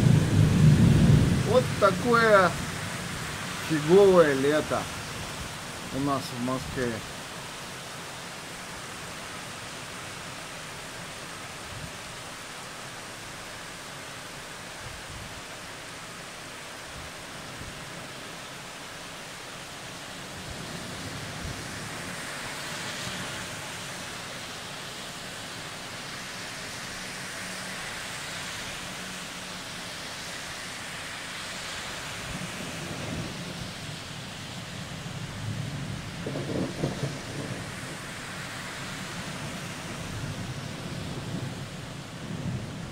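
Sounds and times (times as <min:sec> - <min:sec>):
heavy rain: 0:00.0 - 0:42.9.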